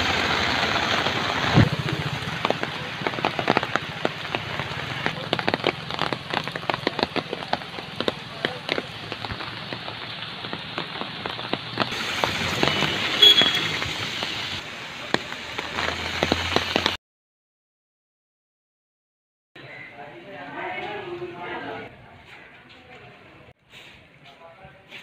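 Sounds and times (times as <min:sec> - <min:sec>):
heavy rain falling: 0:00.0 - 0:17.0.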